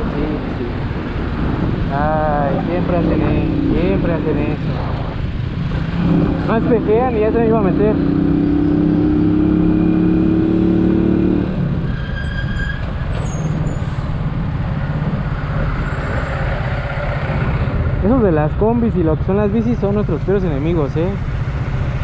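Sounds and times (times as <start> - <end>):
road and traffic noise: 0.0 - 22.0
faint high squeal: 11.9 - 14.1.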